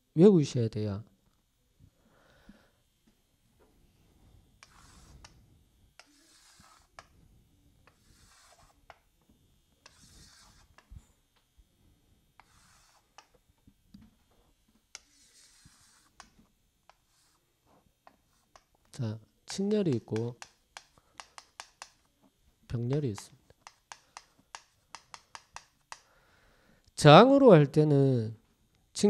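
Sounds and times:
chalk scraping on chalkboard: 0:04.6 - 0:05.4, 0:06.0 - 0:07.1, 0:07.8 - 0:09.0, 0:09.8 - 0:10.9, 0:12.4 - 0:13.4, 0:14.9 - 0:18.7
chalk tapping: 0:04.6 - 0:05.4, 0:06.0 - 0:07.2, 0:07.8 - 0:09.1, 0:09.8 - 0:10.9, 0:12.4 - 0:13.4, 0:14.9 - 0:17.4, 0:18.0 - 0:18.8, 0:19.4 - 0:22.1, 0:22.7 - 0:26.1.

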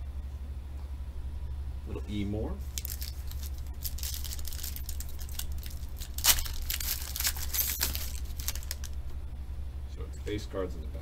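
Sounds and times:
foil wrapper crackling: 0:02.7 - 0:09.0
foil wrapper ripping: 0:02.7 - 0:09.0.

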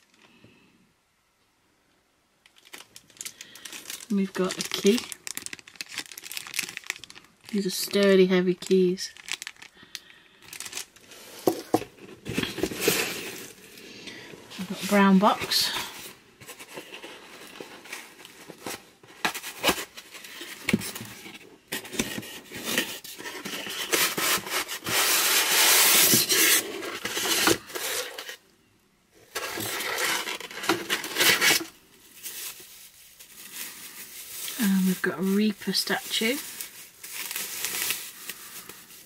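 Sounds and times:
cardboard scraping and rubbing: 0:16.4 - 0:28.4, 0:29.3 - 0:31.7
cardboard tearing: 0:21.8 - 0:28.4, 0:29.3 - 0:32.6.

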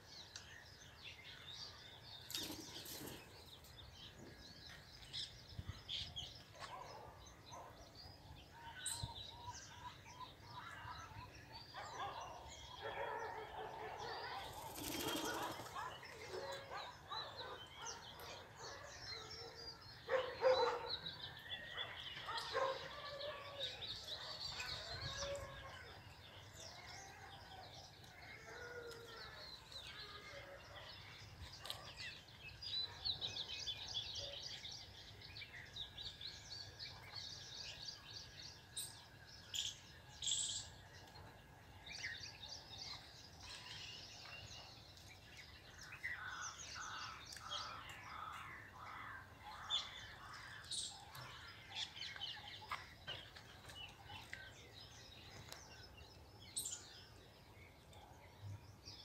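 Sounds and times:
wings flapping: 0:14.5 - 0:15.8.

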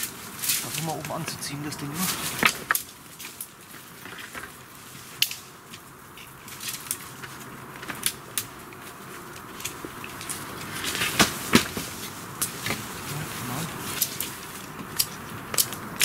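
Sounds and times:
wooden poles clicking and knocking: 0:00.0 - 0:03.4, 0:13.9 - 0:16.0
rustling: 0:00.0 - 0:16.0.

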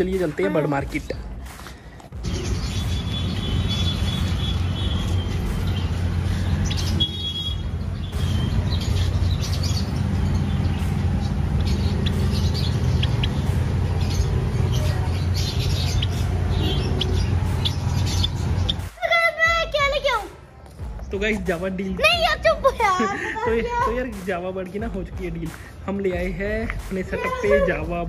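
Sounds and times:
steady low rumble: 0:00.8 - 0:18.9
finches chirping: 0:02.2 - 0:18.9.

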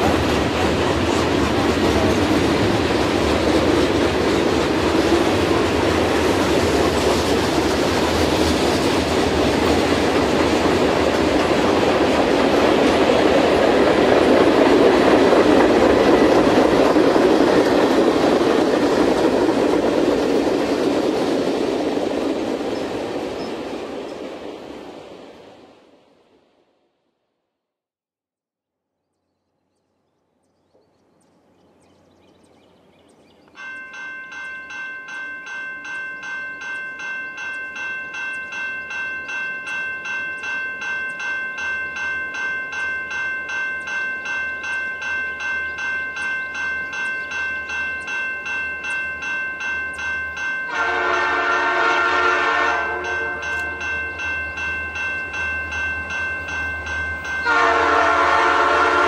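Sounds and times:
bell ringing: 0:33.6 - 0:58.6
locomotive air horn: 0:50.7 - 0:53.5, 0:57.4 - 0:59.0.

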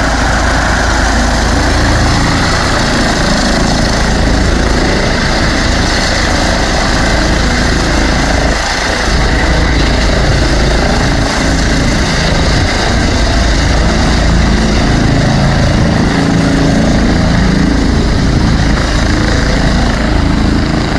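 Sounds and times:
helicopter turbine and rotor: 0:00.0 - 0:20.9.

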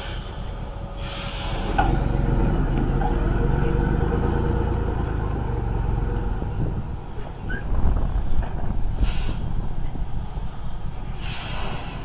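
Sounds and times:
burst of hiss: 0:00.0 - 0:01.8, 0:10.2 - 0:12.0
truck engine running: 0:00.0 - 0:12.0.

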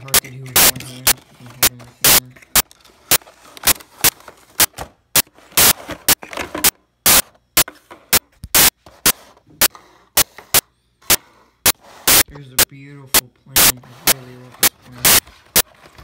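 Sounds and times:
cardboard and plastic packaging crinkling: 0:00.0 - 0:06.7, 0:14.0 - 0:16.0.

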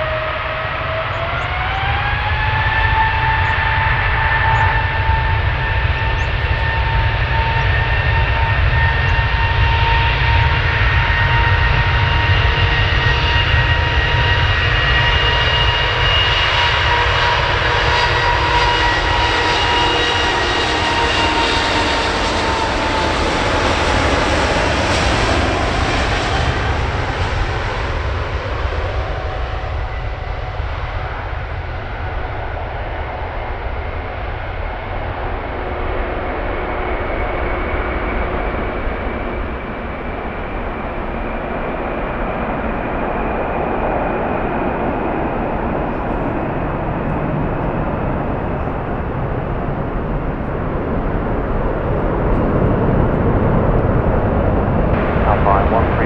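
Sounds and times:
jet engines at takeoff: 0:00.0 - 0:56.0.

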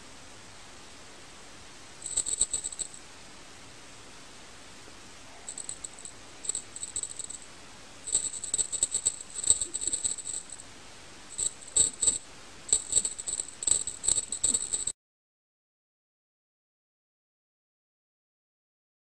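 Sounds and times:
small metal bell jingling: 0:02.0 - 0:03.0, 0:05.5 - 0:07.5, 0:08.1 - 0:10.6, 0:11.3 - 0:14.9.

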